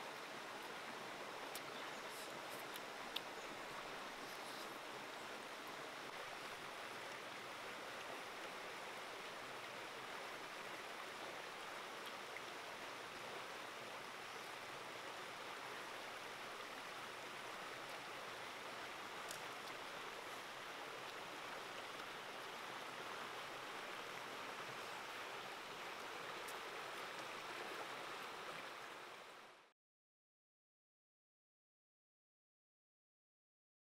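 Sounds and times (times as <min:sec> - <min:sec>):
stream running over rocks: 0:00.0 - 0:29.7
faint ticks: 0:19.2 - 0:19.8.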